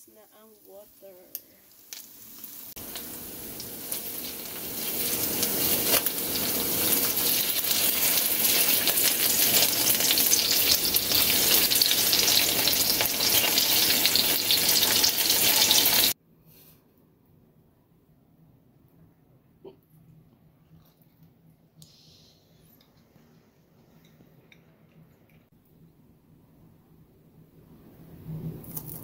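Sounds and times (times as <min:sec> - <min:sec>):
sausages sizzling in a frying pan: 0:00.0 - 0:16.2.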